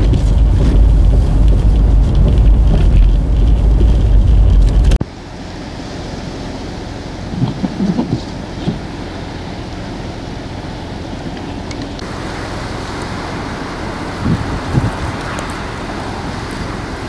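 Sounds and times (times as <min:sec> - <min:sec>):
wind buffets on microphone: 0:00.0 - 0:05.0, 0:13.1 - 0:17.0
strong wind through trees: 0:00.0 - 0:17.0.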